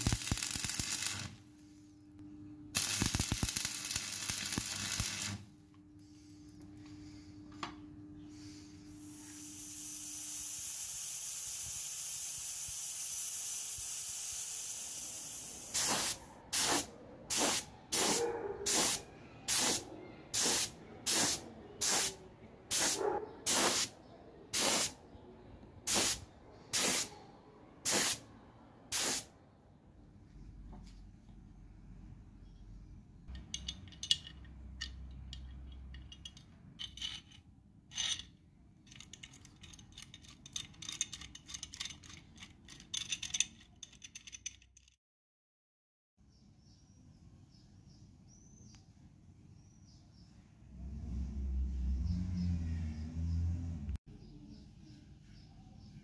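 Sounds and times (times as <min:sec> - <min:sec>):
spray gun hissing blasts: 0:09.4 - 0:19.8, 0:22.7 - 0:23.9, 0:26.8 - 0:27.1, 0:27.9 - 0:28.2, 0:28.9 - 0:29.3.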